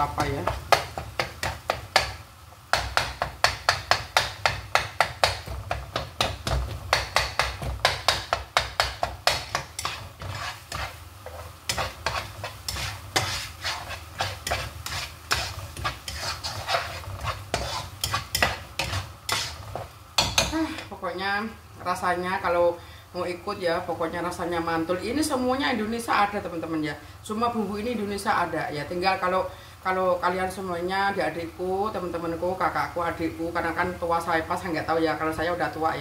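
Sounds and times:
spatula scraping a wok: 0:00.0 - 0:20.6.

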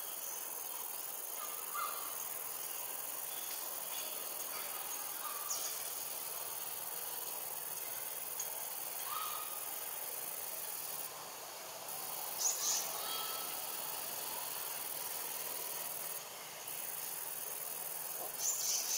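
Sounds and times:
high-pitched insect drone: 0:00.0 - 0:11.1, 0:11.9 - 0:18.9.

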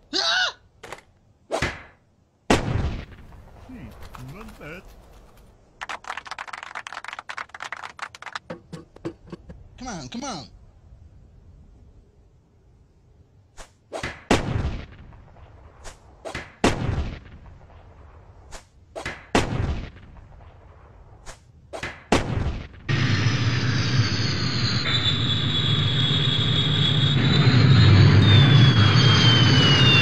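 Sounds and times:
jet engine whine: 0:22.9 - 0:30.0.

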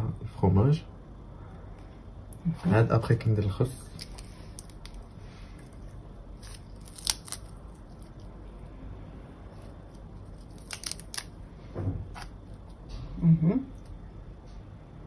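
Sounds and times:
lettuce leaves crackling: 0:03.7 - 0:08.5, 0:09.5 - 0:11.4.

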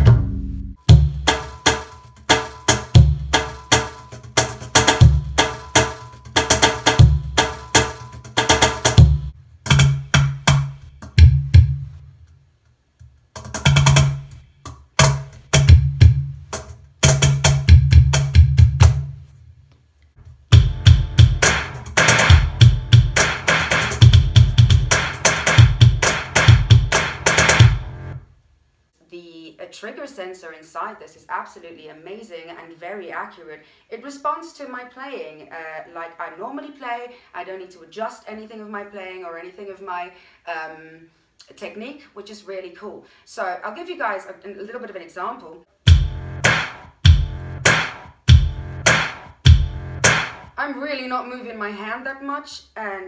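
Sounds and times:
electronic djembe drumming: 0:00.0 - 0:11.8, 0:15.0 - 0:19.1, 0:20.5 - 0:28.1, 0:45.9 - 0:50.5.

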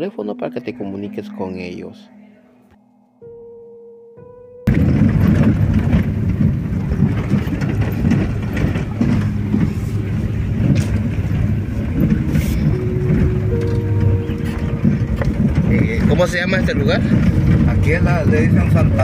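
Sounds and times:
engine and tyres rumbling: 0:04.6 - 0:19.0.

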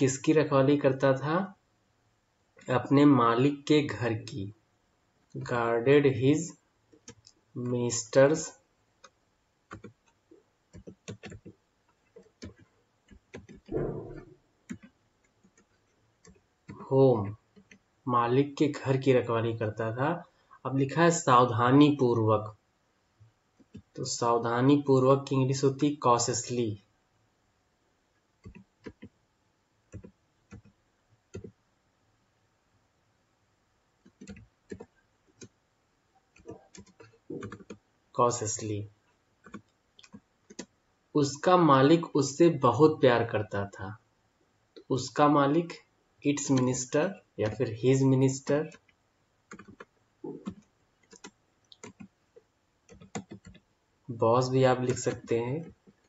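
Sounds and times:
computer keyboard keystrokes: 0:09.0 - 0:14.1, 0:14.7 - 0:16.8, 0:28.4 - 0:29.2, 0:29.9 - 0:31.6, 0:34.1 - 0:35.5, 0:36.4 - 0:37.8, 0:39.4 - 0:40.7, 0:49.5 - 0:52.1, 0:52.9 - 0:53.6.

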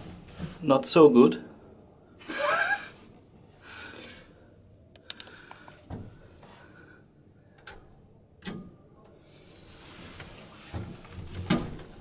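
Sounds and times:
elevator door and control clicks: 0:07.6 - 0:09.2.

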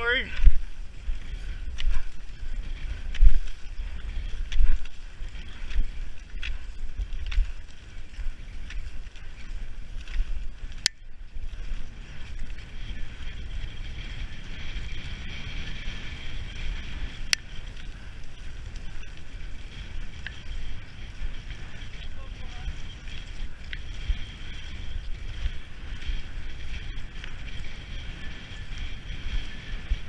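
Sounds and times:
skis scraping over snow: 0:00.0 - 0:30.0
wind rumble on microphone: 0:00.0 - 0:30.0
ski pole clicks: 0:05.7 - 0:07.6, 0:10.0 - 0:11.0, 0:17.2 - 0:17.9.

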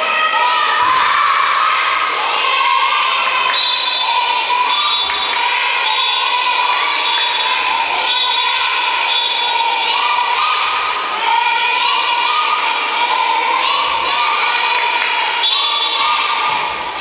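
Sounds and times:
children shouting a cheer: 0:00.0 - 0:17.0.

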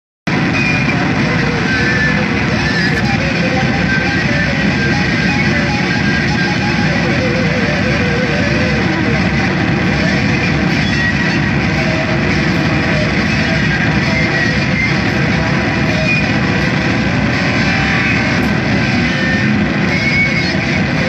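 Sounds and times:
distorted noise music: 0:00.3 - 0:21.0.

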